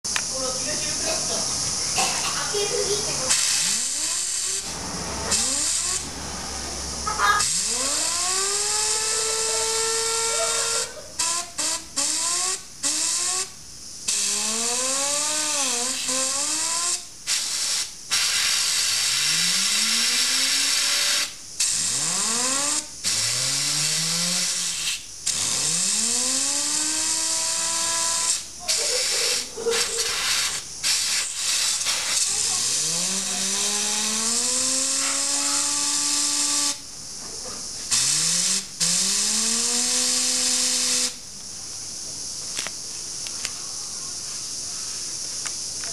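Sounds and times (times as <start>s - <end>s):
fan whining: 0.1s - 16.4s, 32.2s - 37.6s
compressed air hissing: 0.1s - 45.9s.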